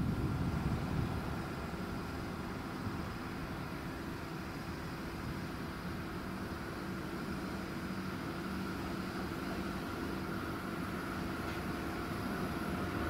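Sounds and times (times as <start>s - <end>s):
distant train rumble: 0.0s - 13.0s.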